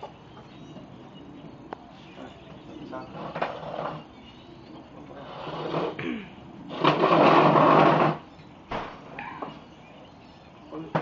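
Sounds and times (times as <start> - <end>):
chair legs scraping on concrete: 3.0 - 4.2, 5.0 - 6.1, 6.7 - 8.3.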